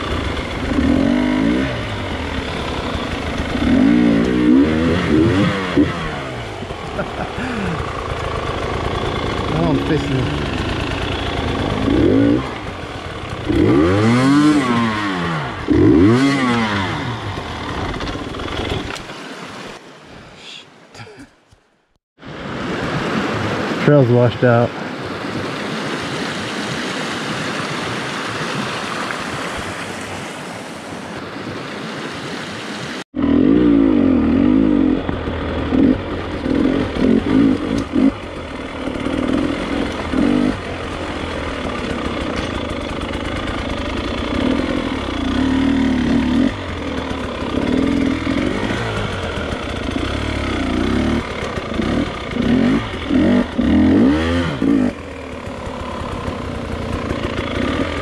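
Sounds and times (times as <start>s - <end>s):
dirt bike engine revving: 0.0s - 19.1s, 33.2s - 58.0s
creek rushing over rocks: 22.2s - 33.0s.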